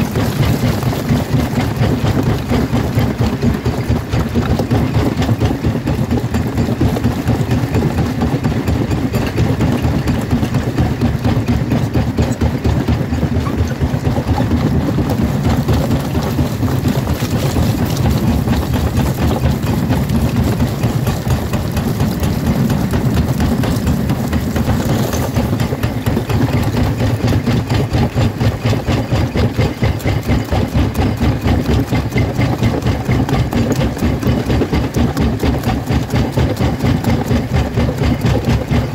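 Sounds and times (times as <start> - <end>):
jaw crusher mechanical drone: 0.0 - 38.9
rock cracking and grinding: 15.0 - 27.3.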